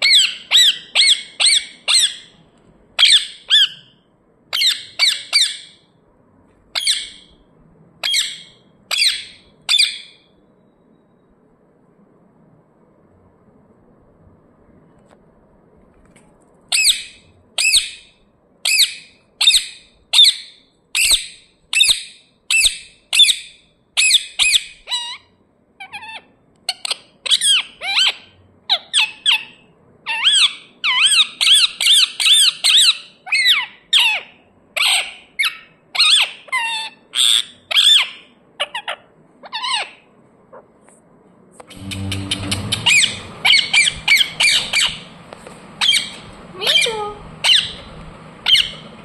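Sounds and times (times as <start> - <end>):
parakeet squawking: 0.0 - 2.4, 3.0 - 3.9, 4.5 - 5.8, 6.7 - 7.3, 8.0 - 10.2, 16.7 - 40.7, 41.7 - 45.1, 45.8 - 48.8.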